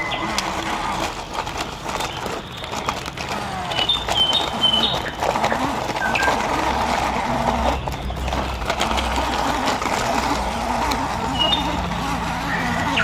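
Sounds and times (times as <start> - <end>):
toy truck motor whining: 0.0 - 13.0
bird chirping: 3.7 - 6.4, 11.3 - 13.0.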